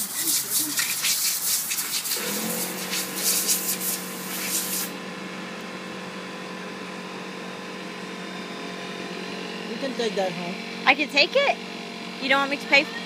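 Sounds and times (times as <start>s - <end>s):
sander rubbing wood: 0.0s - 4.9s
power tool motor running: 0.0s - 13.0s.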